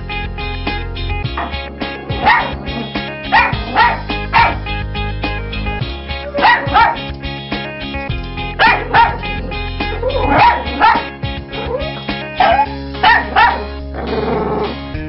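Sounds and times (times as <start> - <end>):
background music: 0.0 - 15.0
dog barking: 2.1 - 4.6, 6.2 - 7.0, 8.6 - 13.8.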